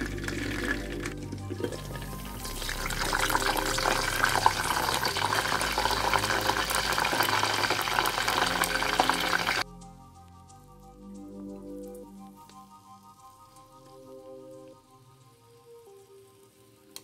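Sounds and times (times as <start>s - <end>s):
fish deep-frying in oil: 0.0s - 9.6s.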